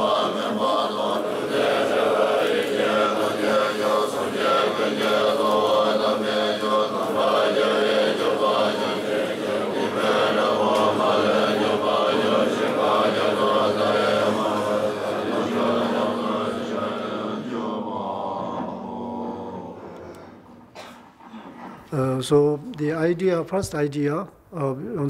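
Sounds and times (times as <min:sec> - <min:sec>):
men chanting in unison: 0:00.0 - 0:20.0.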